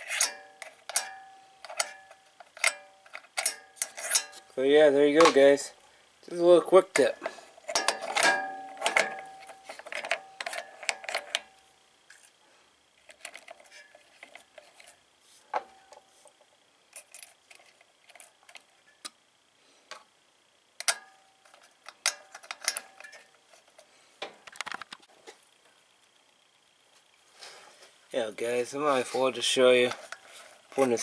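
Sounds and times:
small metal parts clicking: 0:00.0 - 0:04.5, 0:07.0 - 0:12.3, 0:16.9 - 0:19.2, 0:20.8 - 0:23.8.

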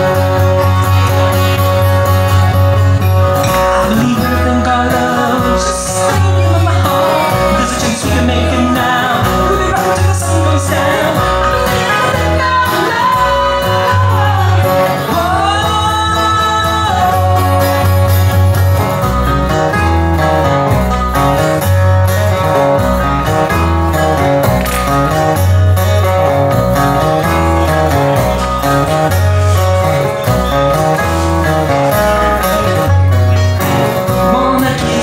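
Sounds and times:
guitars: 0:00.0 - 0:35.0
pulsing bass line: 0:00.0 - 0:35.0
person singing: 0:03.4 - 0:18.5, 0:31.7 - 0:35.0.

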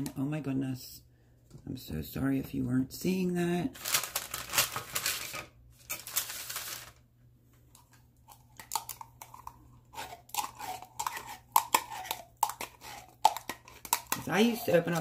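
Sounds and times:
paper rustling: 0:03.8 - 0:07.0
metal scoop scraping tin can: 0:09.9 - 0:15.0.

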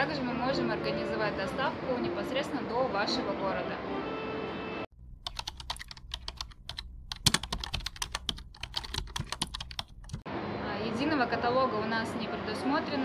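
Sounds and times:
keyboard typing clicks: 0:05.2 - 0:10.2.

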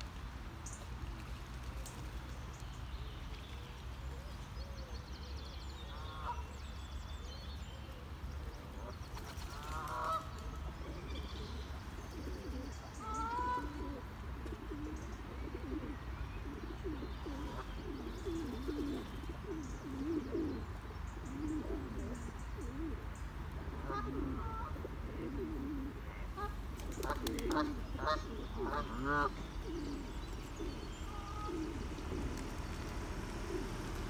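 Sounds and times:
small birds chirping: 0:00.6 - 0:23.4, 0:26.1 - 0:34.0
pigeons cooing: 0:07.7 - 0:34.0
geese honking: 0:13.0 - 0:13.8, 0:26.1 - 0:29.4, 0:31.0 - 0:31.8.

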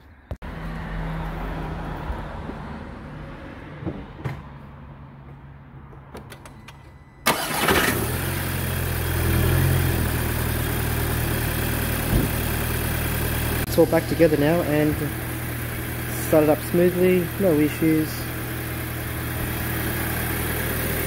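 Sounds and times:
car engine starting and idling: 0:06.1 - 0:21.0.

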